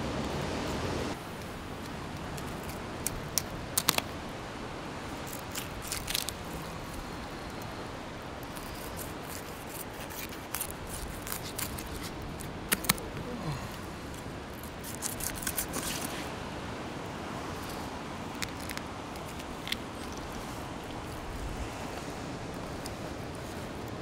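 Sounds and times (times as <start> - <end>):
steady background hiss: 0.0 - 24.0
knife crackling through fish bones: 5.2 - 6.6, 8.4 - 13.1, 14.1 - 16.1.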